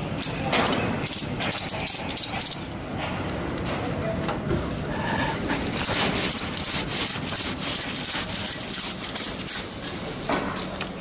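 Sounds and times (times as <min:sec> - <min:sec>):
ratchet buckle metal clicks: 0:01.1 - 0:02.7, 0:06.6 - 0:09.6.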